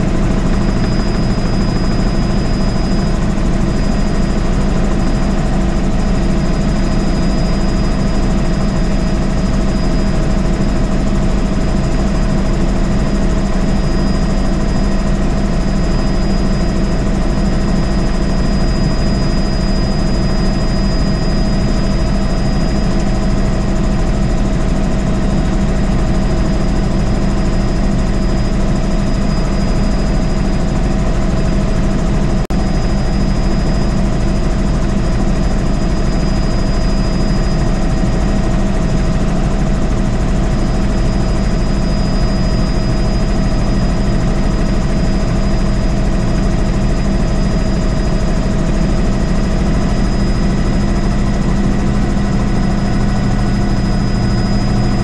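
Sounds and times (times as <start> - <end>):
helicopter engine and rotor drone: 0.0 - 55.0
high whine: 0.0 - 55.0.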